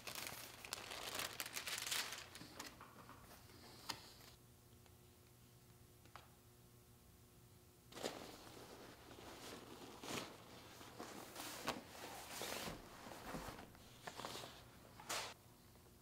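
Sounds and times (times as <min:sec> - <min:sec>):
fabric bag rustling: 0:07.9 - 0:13.7.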